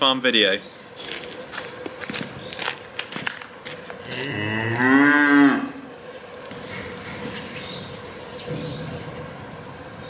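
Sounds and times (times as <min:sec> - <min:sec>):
calf mooing: 0:04.0 - 0:05.8.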